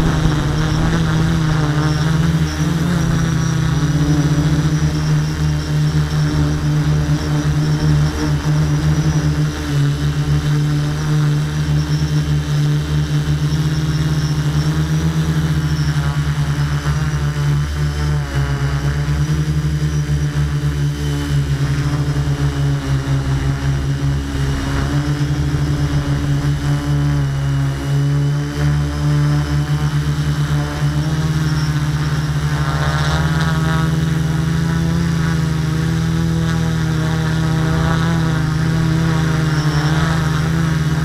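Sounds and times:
drone motors humming: 0.0s - 41.0s.

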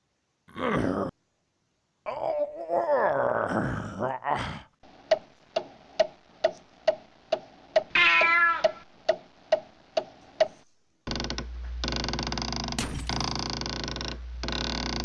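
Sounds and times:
steady noise with low hum: 4.7s - 15.0s
clock-like ticking: 4.9s - 7.9s, 8.6s - 10.6s
cat meowing: 7.9s - 8.8s.

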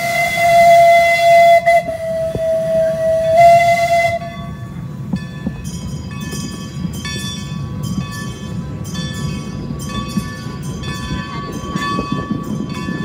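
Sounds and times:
steam whistle blast: 0.0s - 4.6s
steam hiss: 0.0s - 8.5s
train rolling along track: 0.0s - 13.0s.

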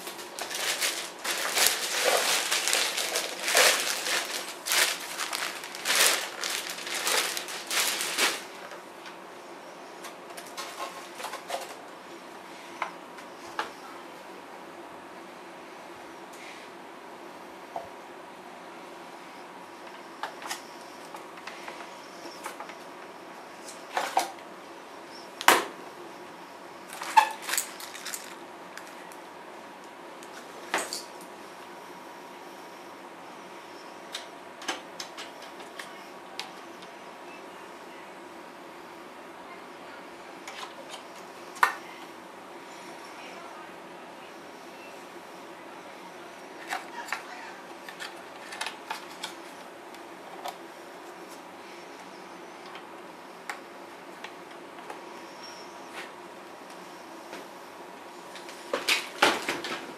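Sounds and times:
plastic bags crinkling: 0.0s - 8.8s, 26.9s - 29.0s.

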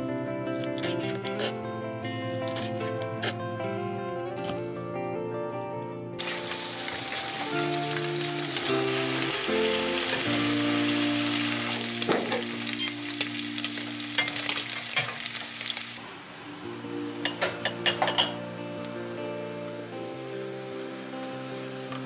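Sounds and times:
background music: 0.0s - 22.0s
meat sizzling in a frying pan: 6.2s - 16.0s.

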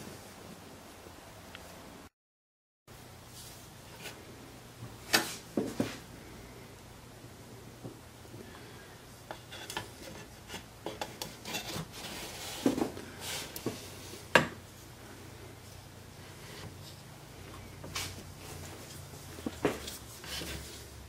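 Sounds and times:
tool rubbing and scraping: 9.3s - 14.0s, 19.4s - 20.9s.

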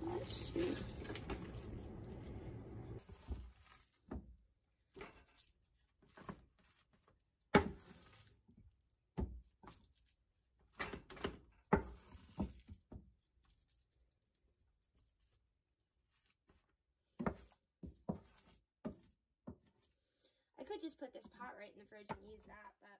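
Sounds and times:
wooden spoon scraping a metal pot: 0.0s - 4.1s.

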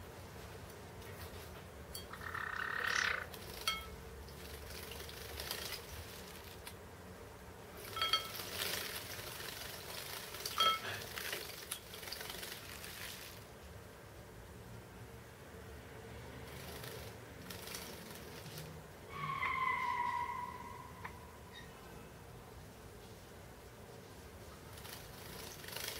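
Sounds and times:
birds splashing in water: 2.1s - 6.8s, 7.8s - 13.5s, 16.4s - 18.8s, 24.7s - 25.9s
wings flapping: 2.2s - 6.8s, 7.8s - 13.5s, 16.4s - 18.8s, 24.5s - 25.9s.

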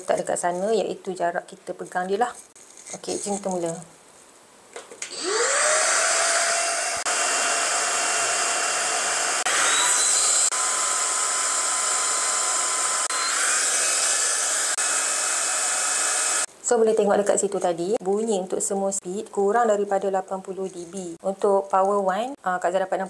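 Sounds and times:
stick vacuum motor whirring: 5.1s - 16.5s.

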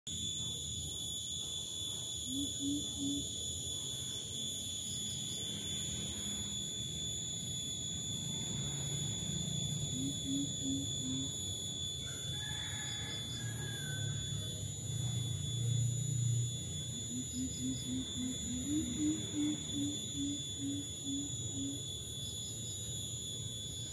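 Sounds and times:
steady high-pitched whine: 0.1s - 23.9s
coucal low hoots: 2.2s - 3.4s, 16.1s - 21.9s.

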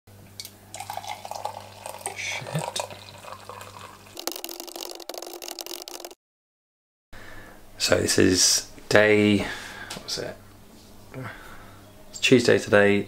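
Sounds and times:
water poured into mug: 0.7s - 6.2s.

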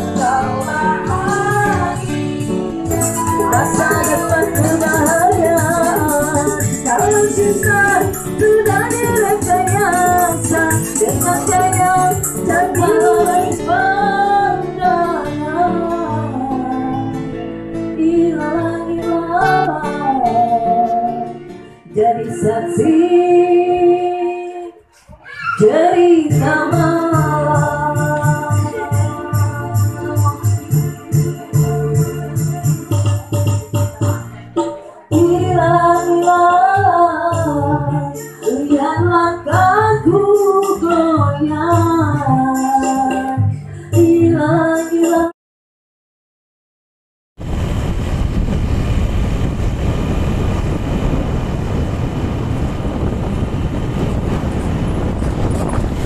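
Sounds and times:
instrumental backing: 0.0s - 24.2s, 25.7s - 45.3s
woman singing: 0.0s - 24.9s, 25.6s - 32.8s, 33.9s - 45.4s.

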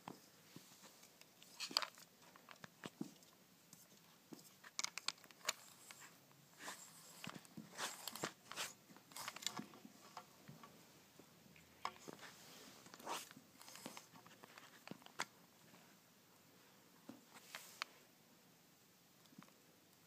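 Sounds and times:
lure rustling across carpet: 0.1s - 10.6s, 11.8s - 16.0s, 17.2s - 18.1s.

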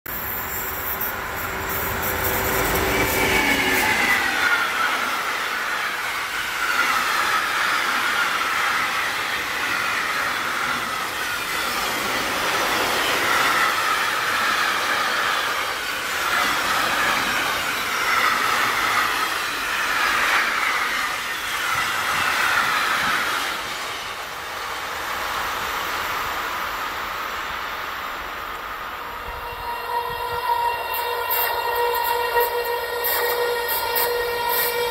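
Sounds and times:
train wheels on rails: 0.1s - 34.9s.

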